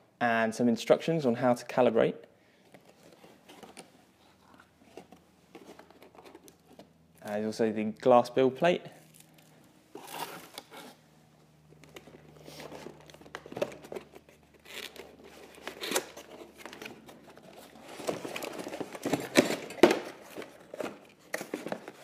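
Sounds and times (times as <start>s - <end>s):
cardboard box rustling and scraping: 12.0s - 22.0s.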